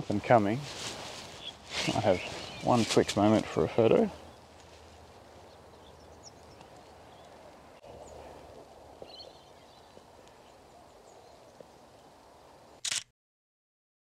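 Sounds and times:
bird chirps: 0:01.3 - 0:03.3, 0:05.4 - 0:12.1.

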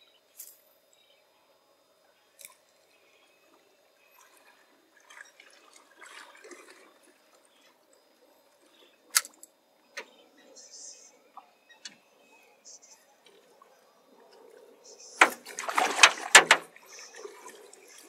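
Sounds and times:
water lapping against boat hull: 0:03.5 - 0:09.4, 0:13.1 - 0:18.0.

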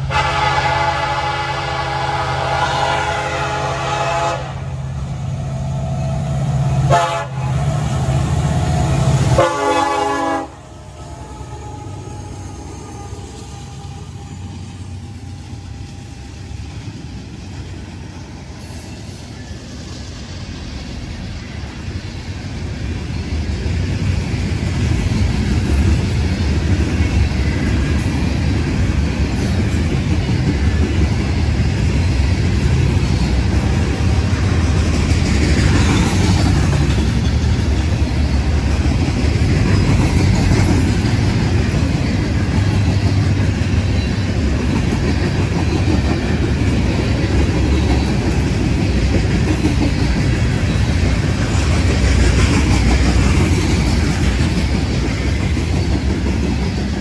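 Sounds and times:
locomotive horn blasts: 0:00.0 - 0:04.7, 0:06.8 - 0:07.7, 0:09.0 - 0:14.6
train rumble: 0:00.0 - 0:57.0.

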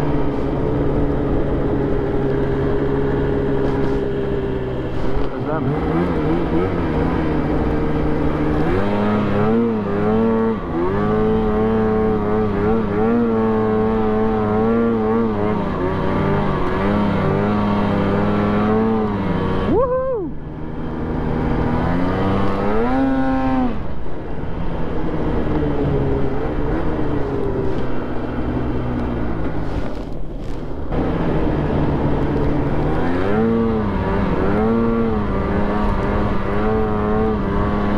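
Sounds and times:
snowmobile engine revving: 0:04.8 - 0:23.9, 0:30.9 - 0:37.9.

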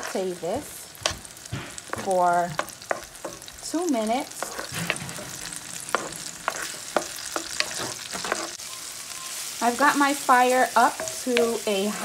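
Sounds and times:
wooden spoon scraping pan: 0:00.0 - 0:08.6
onion and garlic sizzling in oil: 0:00.0 - 0:12.0.

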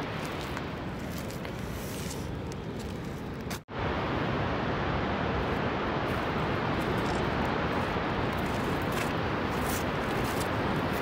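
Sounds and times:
waterfall rushing: 0:03.8 - 0:11.0.

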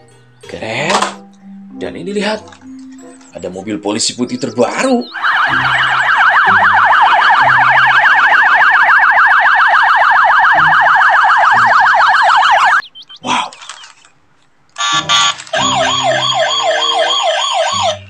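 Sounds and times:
police siren yelping: 0:04.4 - 0:13.9, 0:14.8 - 0:18.0.

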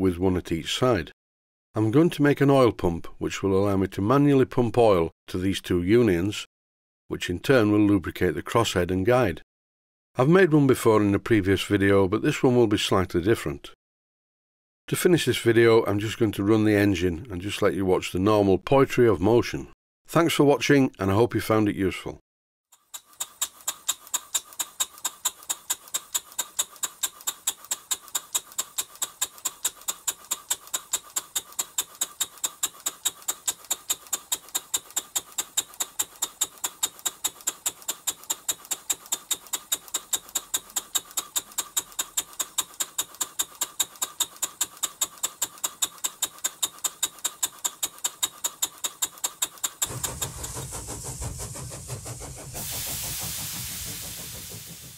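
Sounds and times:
steam engine beating: 0:49.6 - 0:54.9
low rumble: 0:49.9 - 0:54.9.

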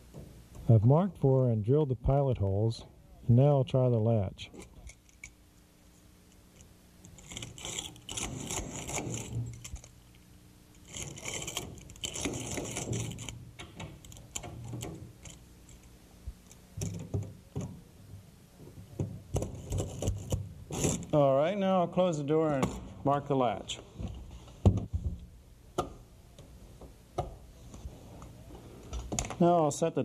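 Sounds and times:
screwdriver clicking and scraping: 0:06.6 - 0:10.2.

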